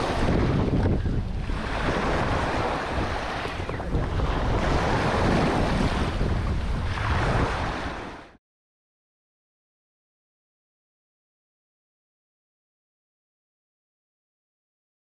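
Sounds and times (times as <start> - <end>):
water washing and splashing: 0.0 - 8.3
wind blowing across microphone: 0.0 - 8.4.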